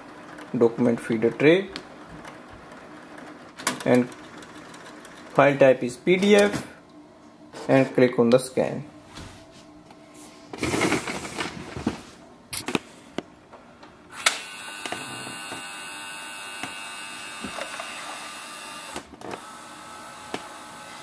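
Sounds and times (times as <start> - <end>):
scanner motor whine: 14.1 - 21.0.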